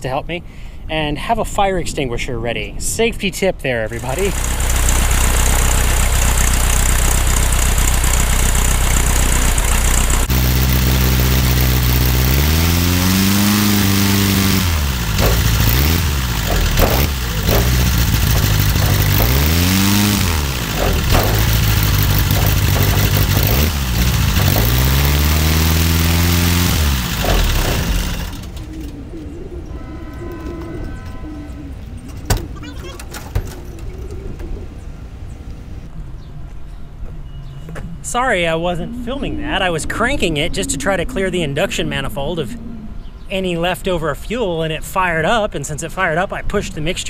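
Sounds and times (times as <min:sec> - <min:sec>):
piston aircraft engine running: 0:03.9 - 0:31.4.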